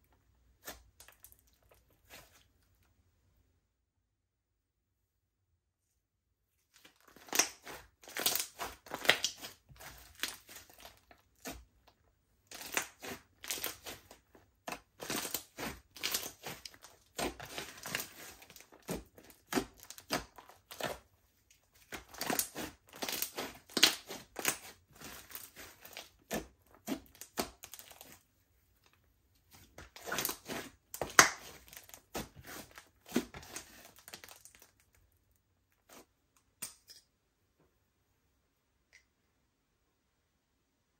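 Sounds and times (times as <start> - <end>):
slime squished by hand: 6.8 - 11.7, 12.5 - 21.1, 21.8 - 28.2, 29.6 - 34.9.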